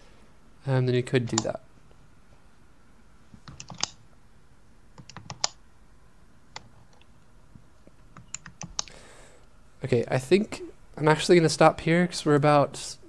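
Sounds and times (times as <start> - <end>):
computer clicks and taps: 3.4 - 4.0, 5.0 - 5.6, 7.9 - 8.9.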